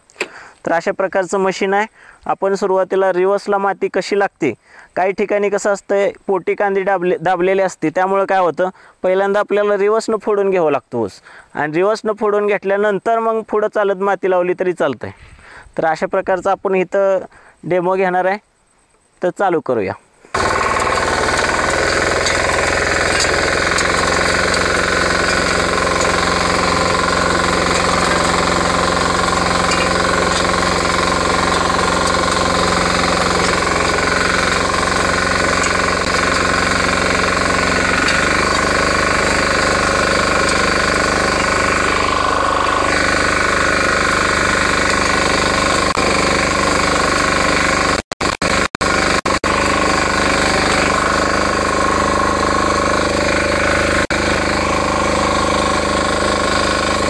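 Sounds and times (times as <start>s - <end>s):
diesel engine running: 20.3s - 57.0s.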